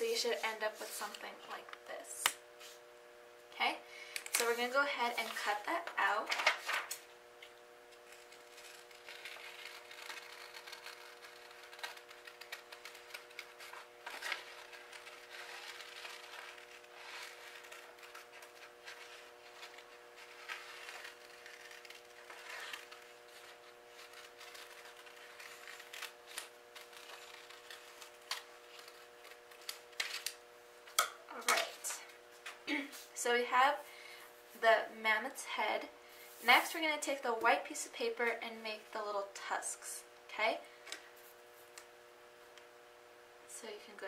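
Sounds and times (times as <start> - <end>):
paper rustling: 4.5 - 7.0, 8.1 - 30.4
scissors snipping paper: 8.1 - 30.4.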